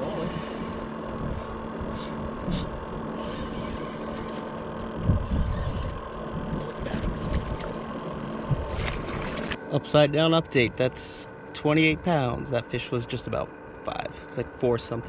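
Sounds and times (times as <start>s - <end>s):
faint steady hum: 0.0s - 15.0s
wind buffeting microphone: 4.9s - 7.7s.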